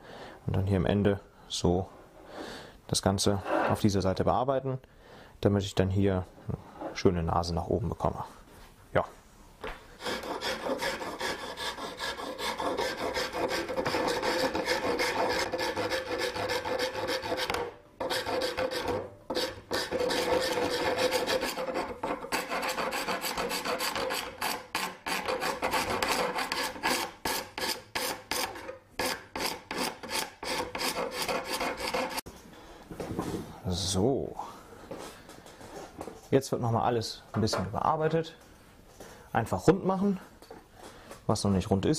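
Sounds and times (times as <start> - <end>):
hand file scraping wood: 3.3 - 3.8, 10.0 - 32.3.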